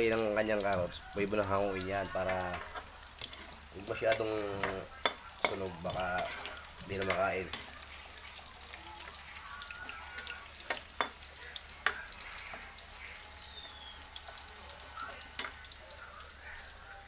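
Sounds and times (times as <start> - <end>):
carrots sizzling in oil: 0.0 - 17.0
utensil clicking against pan: 4.1 - 7.8, 10.2 - 12.7, 15.3 - 15.7.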